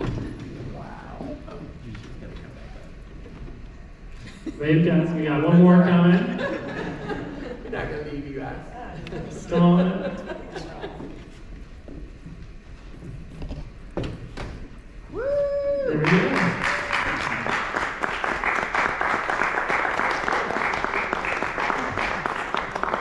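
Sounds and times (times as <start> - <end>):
audience clapping: 15.8 - 23.0.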